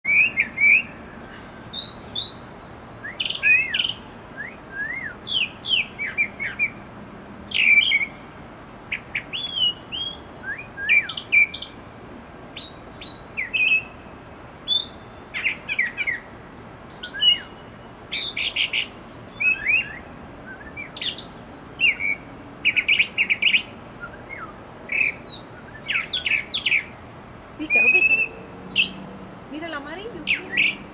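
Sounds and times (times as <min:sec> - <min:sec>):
bird singing whistled phrases: 0:00.1 - 0:01.0, 0:01.6 - 0:06.8, 0:09.2 - 0:11.7, 0:16.9 - 0:30.9.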